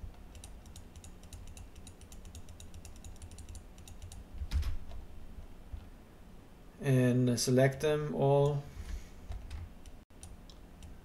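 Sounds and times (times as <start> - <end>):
computer mouse clicks: 0.1 - 4.2, 9.3 - 11.0.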